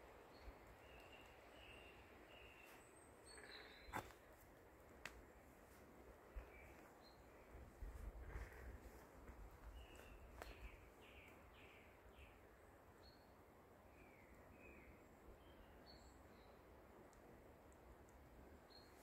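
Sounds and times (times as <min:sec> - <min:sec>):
small bird chirping: 0:00.8 - 0:04.1.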